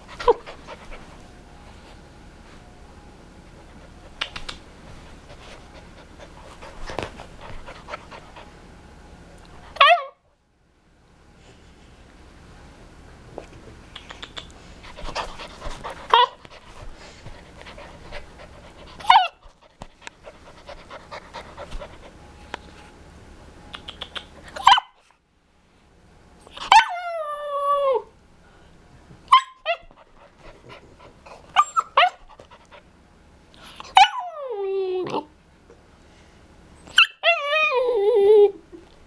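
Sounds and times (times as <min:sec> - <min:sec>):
puppy yipping and barking: 0:09.8 - 0:10.2, 0:16.0 - 0:16.4, 0:19.0 - 0:19.5, 0:23.8 - 0:25.0, 0:26.6 - 0:27.1, 0:29.3 - 0:29.9, 0:31.5 - 0:32.3, 0:34.0 - 0:34.4, 0:36.9 - 0:37.8
puppy howling: 0:19.0 - 0:19.4, 0:26.6 - 0:28.1, 0:34.0 - 0:35.3, 0:36.9 - 0:38.6.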